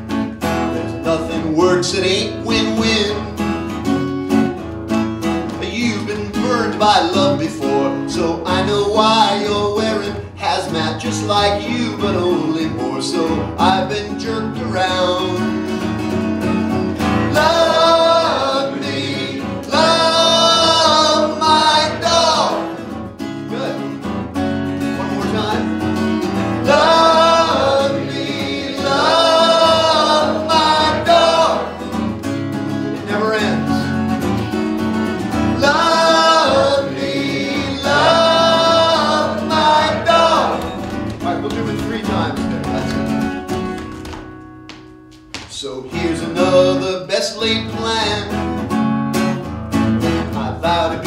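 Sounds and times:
acoustic guitar strumming: 0.0s - 51.0s
second acoustic guitar: 0.0s - 51.0s
man singing: 0.8s - 3.4s, 5.5s - 15.6s, 17.3s - 22.9s, 26.6s - 31.8s, 33.0s - 33.9s, 35.5s - 43.0s, 45.5s - 48.4s, 50.2s - 51.0s.

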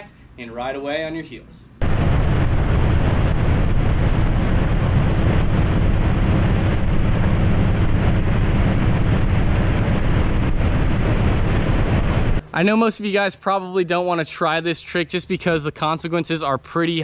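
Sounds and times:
wind rushing over microphone: 1.8s - 12.4s.

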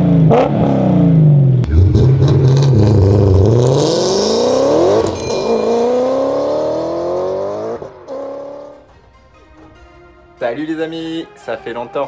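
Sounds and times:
car engine revving hard: 0.0s - 8.8s.

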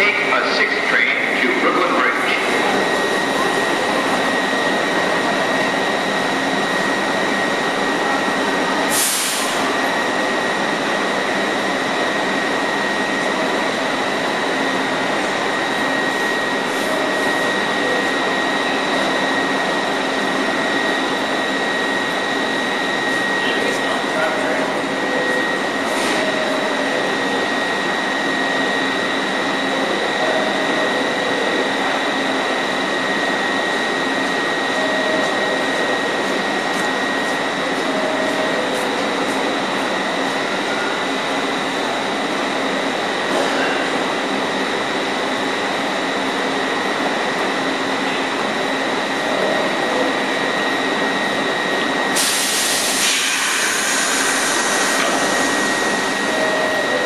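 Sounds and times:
subway train humming: 0.0s - 57.0s
loud hiss: 52.2s - 55.6s.

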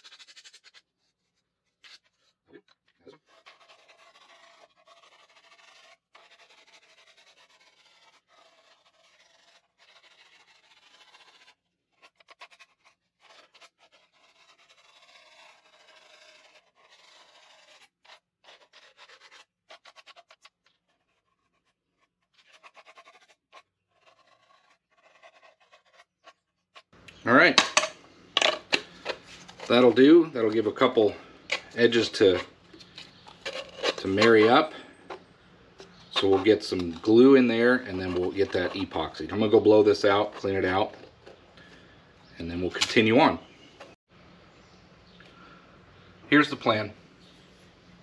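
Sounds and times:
plastic cup rubbed on sandpaper: 0.0s - 2.3s, 3.1s - 26.9s, 28.7s - 35.2s, 35.8s - 41.4s.

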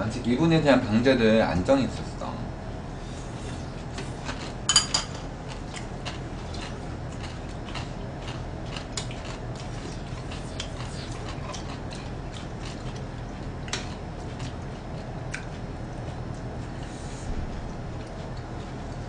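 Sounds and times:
dishes clattering: 4.7s - 5.3s.

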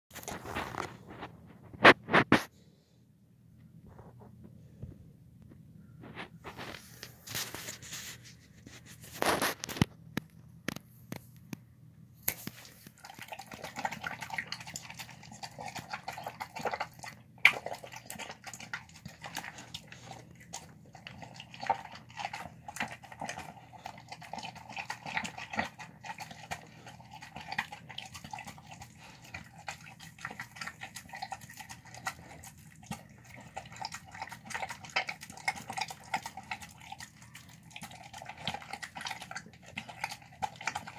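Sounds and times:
dog chewing wet food: 0.1s - 2.0s, 12.3s - 40.9s.

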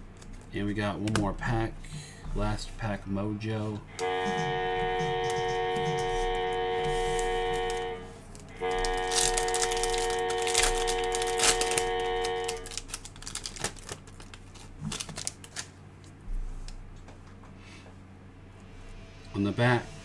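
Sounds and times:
foil wrapper tearing and crinkling: 7.2s - 15.8s.

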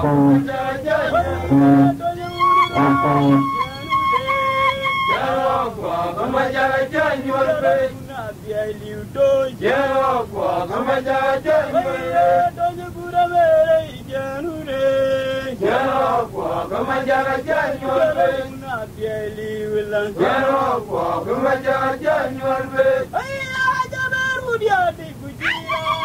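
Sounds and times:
man singing a chant-like song: 0.0s - 3.4s, 5.3s - 23.2s.

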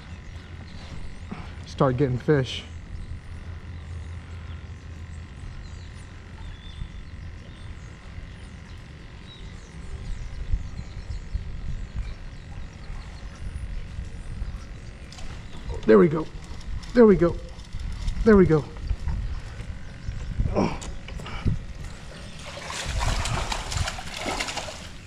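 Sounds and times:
wind on microphone: 9.4s - 25.0s
low rumble of water: 17.5s - 25.0s.

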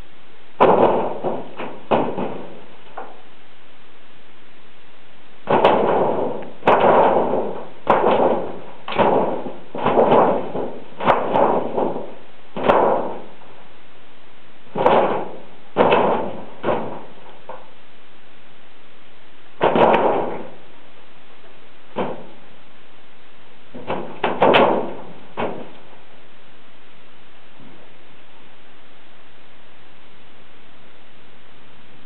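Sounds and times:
thin metal sheet banging: 0.6s - 3.2s, 5.4s - 13.4s, 14.7s - 17.7s, 19.6s - 20.6s, 21.9s - 22.5s, 23.7s - 26.0s.

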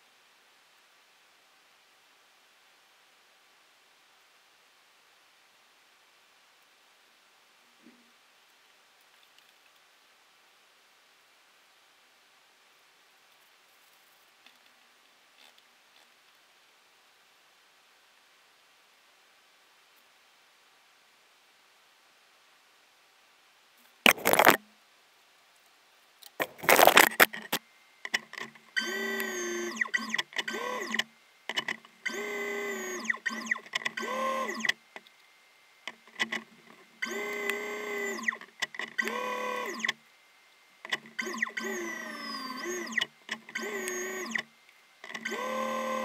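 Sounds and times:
loud short noises: 24.1s - 24.6s, 26.4s - 27.5s.

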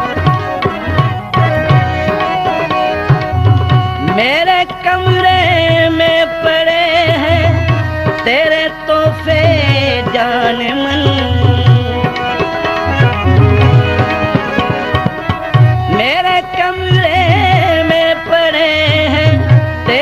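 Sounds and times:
sliding melody line: 0.0s - 4.3s, 11.1s - 16.1s
tabla playing a rhythm: 0.0s - 20.0s.

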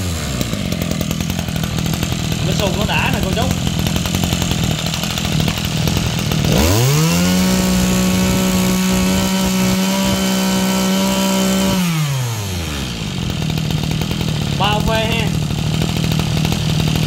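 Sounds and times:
brush cutter engine revving: 0.0s - 17.0s.

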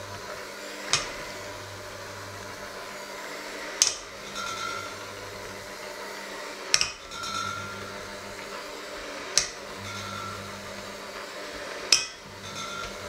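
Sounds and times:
electric hand mixer humming: 0.0s - 13.0s
beaters knocking against metal bowl: 3.8s - 5.1s, 6.7s - 8.2s, 9.3s - 10.6s, 11.9s - 13.0s.

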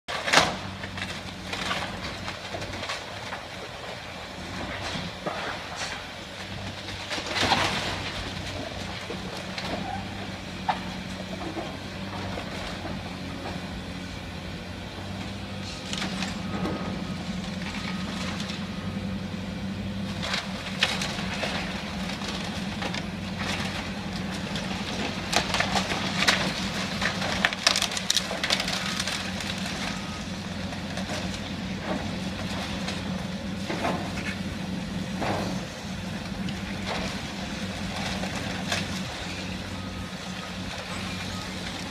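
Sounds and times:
excavator diesel engine running: 0.1s - 41.9s
debris crashing down: 7.0s - 9.4s, 20.1s - 34.2s
timber cracking: 20.2s - 30.0s.

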